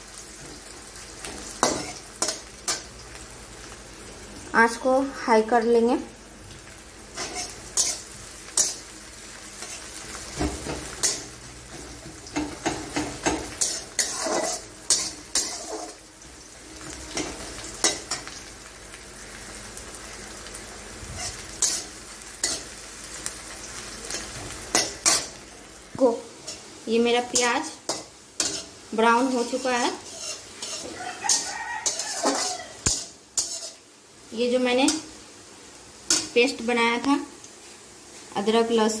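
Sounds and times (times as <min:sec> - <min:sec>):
onions sizzling in hot oil: 0:00.0 - 0:39.0
spatula scraping a metal pan: 0:07.2 - 0:08.0, 0:12.4 - 0:16.0, 0:27.4 - 0:33.8.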